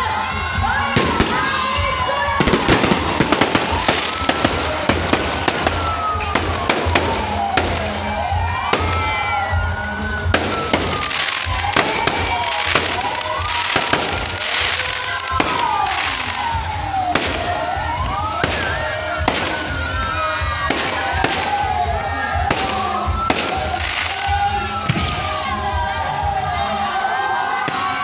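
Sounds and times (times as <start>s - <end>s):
fireworks crackling hiss: 0.1s - 26.0s
fireworks bangs: 0.2s - 26.0s.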